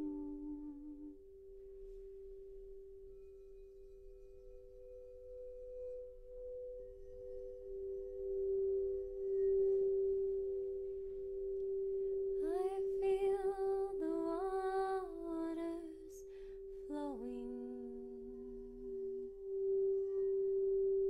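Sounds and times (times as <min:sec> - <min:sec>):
woman singing wordlessly: 0:00.0 - 0:01.2, 0:12.4 - 0:19.2
crystal singing bowls ringing: 0:00.0 - 0:21.0.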